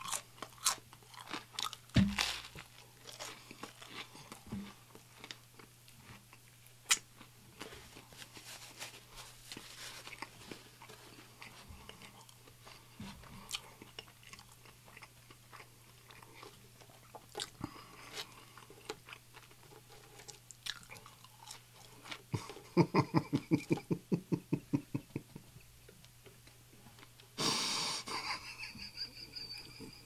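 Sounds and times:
wet chewing with mouth clicks: 0.0s - 8.1s, 10.0s - 22.7s
faint steady hum: 0.0s - 30.0s.

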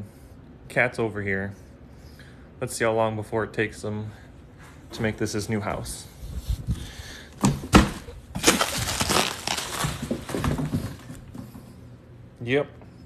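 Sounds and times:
cardboard scraping and crinkling: 7.5s - 11.3s.

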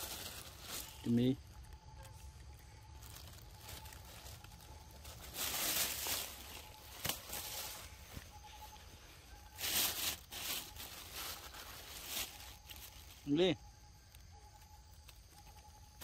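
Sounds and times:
dry leaves crunching: 0.0s - 1.4s, 2.7s - 13.3s.

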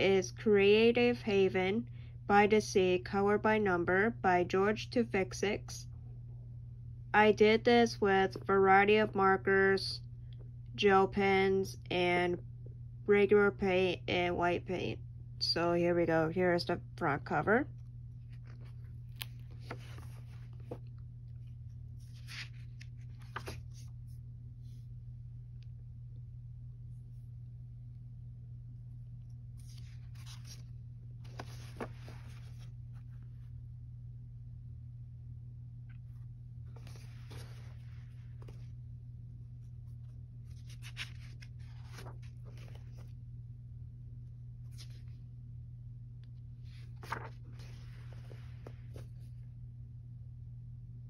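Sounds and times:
steady low hum: 0.0s - 51.0s
paper pages rustling: 18.1s - 24.2s, 29.2s - 33.6s, 36.0s - 38.8s, 39.6s - 43.2s, 44.6s - 45.2s, 46.6s - 49.4s.

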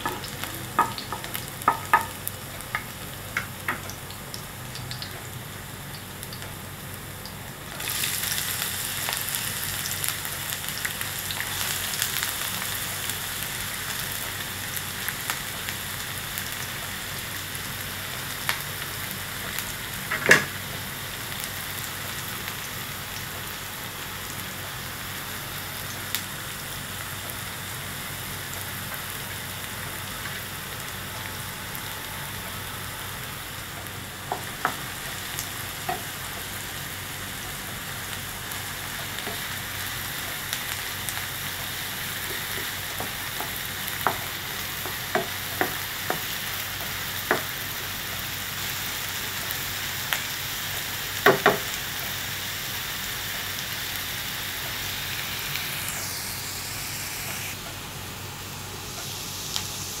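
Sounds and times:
spatula knocking against pan: 0.0s - 2.2s
onions sizzling in hot oil: 0.0s - 60.0s.

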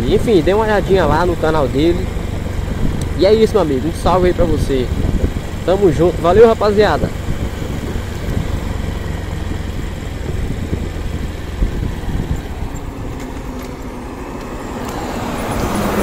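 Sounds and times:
motorcycle engine: 0.0s - 16.0s
wind buffeting microphone: 0.0s - 16.0s
car passing: 7.3s - 16.0s.

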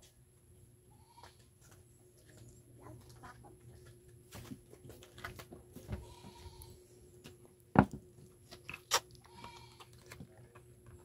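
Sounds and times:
cacao pods clicking and knocking: 7.7s - 11.0s.

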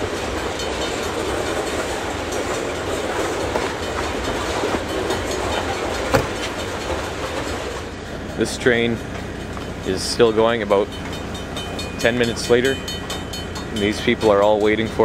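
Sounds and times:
train wheels rumbling on rail: 0.0s - 15.0s
sharp metal clank: 6.1s - 6.7s.

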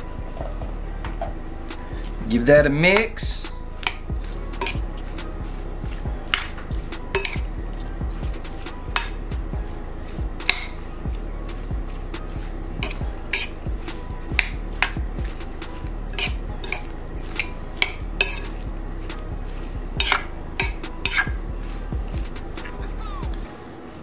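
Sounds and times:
metal spoon clinking glass bowl: 6.2s - 8.0s, 16.1s - 18.6s, 20.0s - 21.4s.

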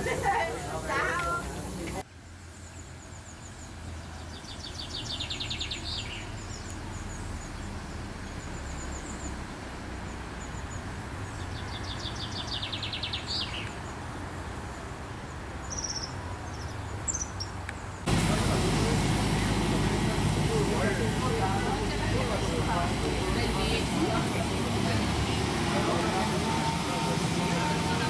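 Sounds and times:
songbird trilling: 4.1s - 9.3s, 10.5s - 13.9s, 15.7s - 17.5s
low steady rumble: 18.1s - 28.0s.

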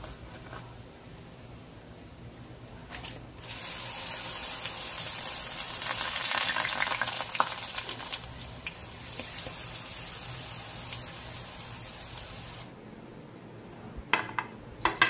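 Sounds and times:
leaves sizzling in hot oil: 3.4s - 12.7s.

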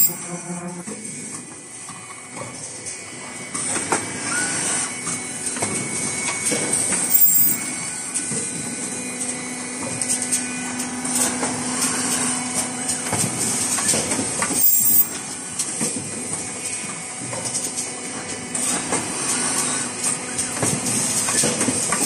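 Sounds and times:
machine hum: 0.0s - 1.8s, 4.7s - 17.3s.

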